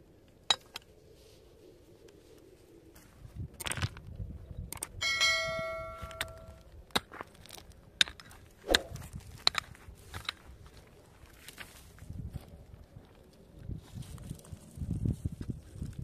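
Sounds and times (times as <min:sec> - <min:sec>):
metallic bell-like ring: 0:05.0 - 0:06.6.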